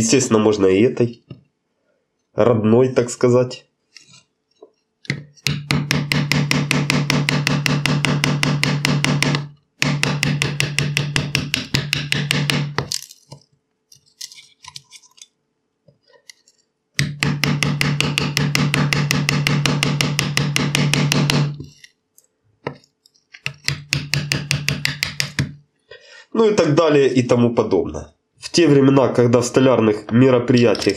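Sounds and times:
steel mallet striking chisel: 0:05.1 - 0:12.8, 0:17.0 - 0:21.7.

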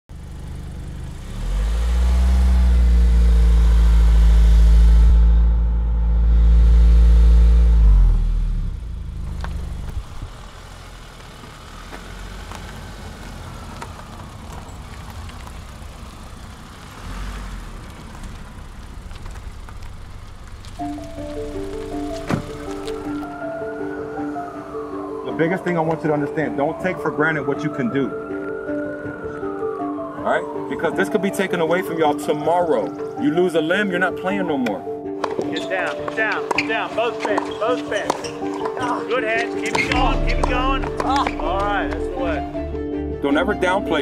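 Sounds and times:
car engine revving: 0:00.1 - 0:27.5, 0:35.2 - 0:42.7
road noise: 0:00.1 - 0:44.0.

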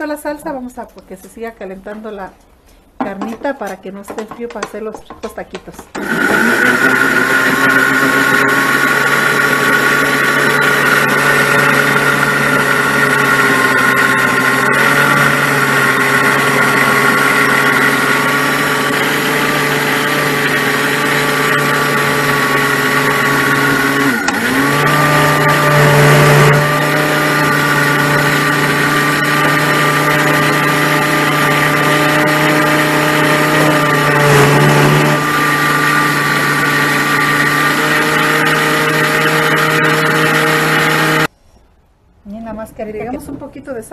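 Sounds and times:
blender grinding: 0:03.2 - 0:41.3.

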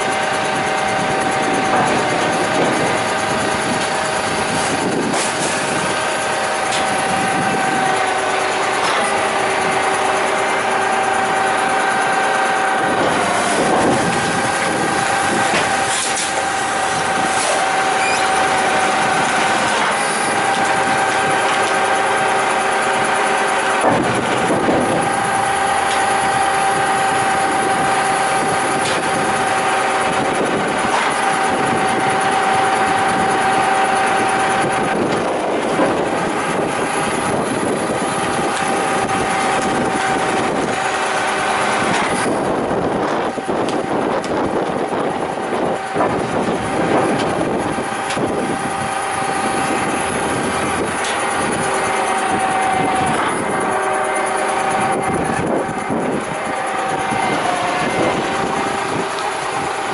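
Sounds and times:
hydraulic compactor whine: 0:00.0 - 0:59.9
truck engine running: 0:00.0 - 0:59.9
compactor knocks: 0:00.5 - 0:10.2, 0:23.7 - 0:29.5.

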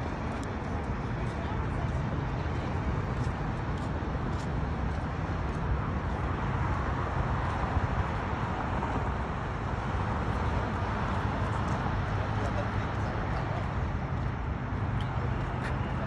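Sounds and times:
highway traffic hum: 0:00.0 - 0:16.0.

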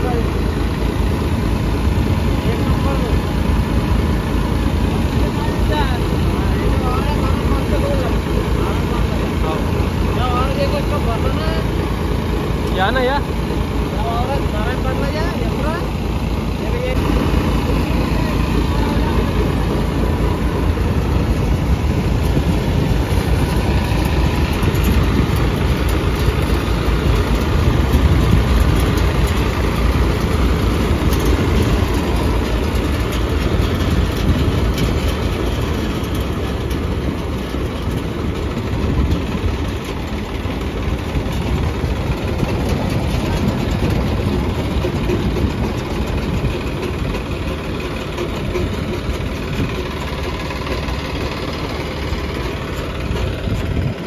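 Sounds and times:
thresher rumble and rattle: 0:00.0 - 0:54.0
tractor diesel engine running: 0:00.0 - 0:54.0.

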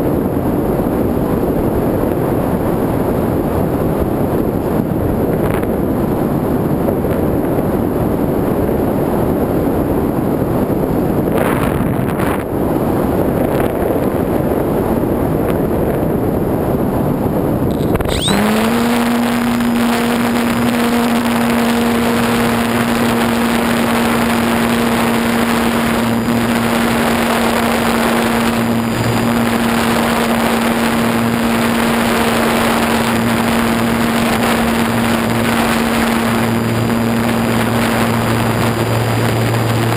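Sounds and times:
model plane motor humming: 0:17.7 - 0:39.9.

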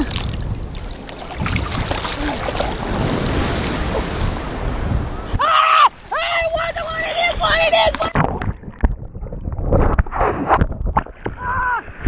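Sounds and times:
small waves breaking: 0:00.0 - 0:08.9
surf washing against microphone: 0:00.0 - 0:12.0.

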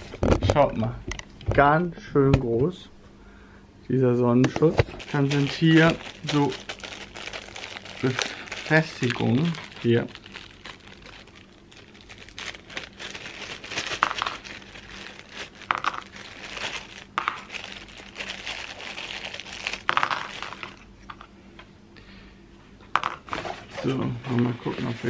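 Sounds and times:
plastic bag crinkling: 0:04.8 - 0:20.9.

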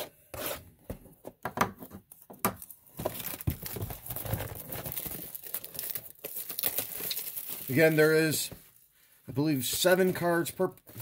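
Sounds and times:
plastic wrap tearing and crinkling: 0:02.6 - 0:08.5.

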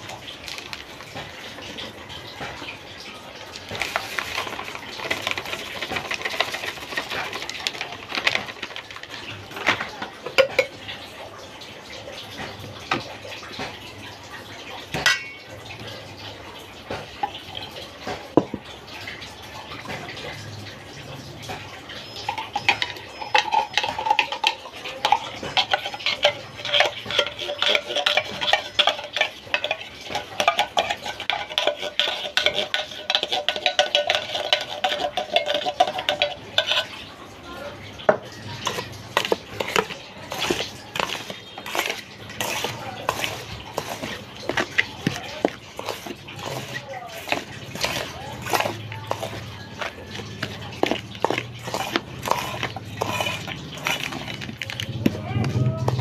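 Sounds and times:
metal spoon clinking in steel bowl: 0:15.0 - 0:15.5, 0:22.1 - 0:37.0, 0:38.6 - 0:56.0.

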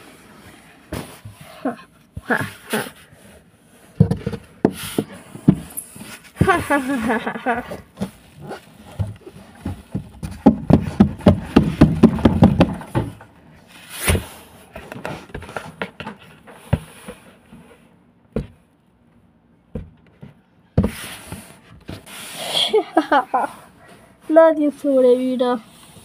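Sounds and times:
knocks and taps on cardboard box: 0:09.0 - 0:13.2, 0:18.3 - 0:18.6, 0:19.7 - 0:21.0.

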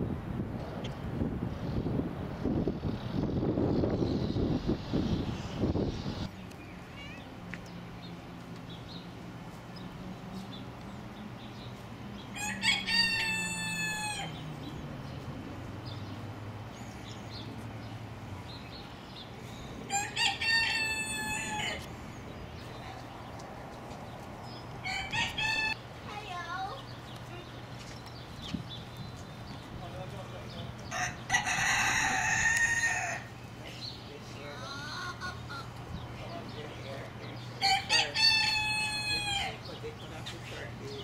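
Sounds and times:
rooster crowing: 0:12.4 - 0:14.4, 0:19.9 - 0:21.9, 0:24.8 - 0:25.8, 0:30.9 - 0:33.3, 0:37.6 - 0:39.6.

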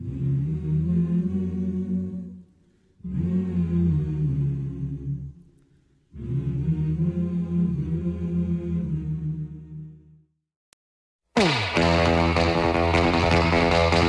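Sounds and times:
choir singing long held chords: 0:00.0 - 0:05.4, 0:06.1 - 0:10.2.

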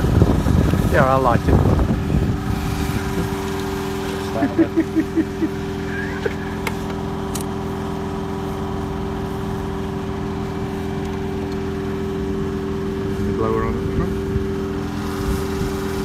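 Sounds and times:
mechanical hum with held tones: 0:00.0 - 0:16.0
low rumble: 0:08.3 - 0:16.0.

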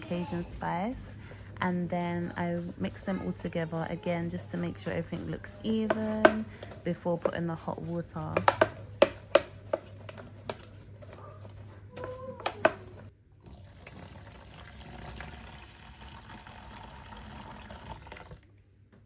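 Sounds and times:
brush knocking plastic tub: 0:00.0 - 0:13.1
water pouring into tub: 0:13.4 - 0:18.5.

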